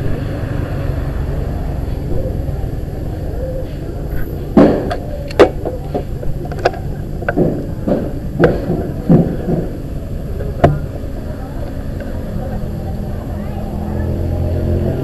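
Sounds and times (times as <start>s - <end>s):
handling knocks and clicks: 4.1s - 9.8s.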